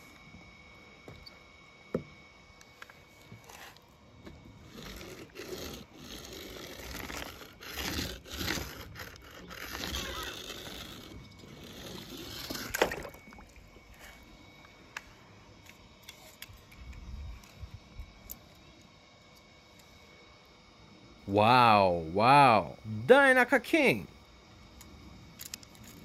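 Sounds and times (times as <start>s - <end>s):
objects scraping on rough surface: 4.6s - 13.3s.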